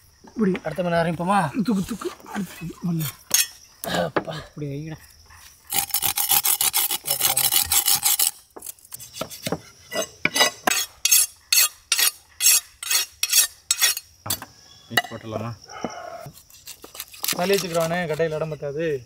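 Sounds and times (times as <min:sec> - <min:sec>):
stone rasping along knife blade: 0:05.7 - 0:08.4, 0:09.0 - 0:14.1, 0:16.3 - 0:18.6.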